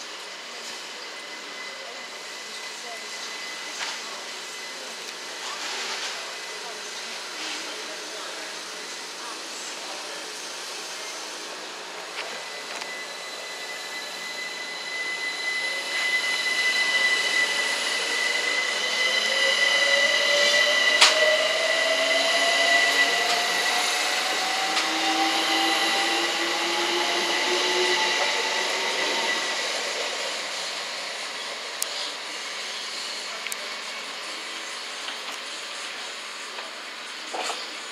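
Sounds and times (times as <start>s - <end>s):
train wheels on rail: 0.0s - 37.9s
steady high tone: 11.3s - 32.4s
traction motor whine: 11.4s - 36.0s.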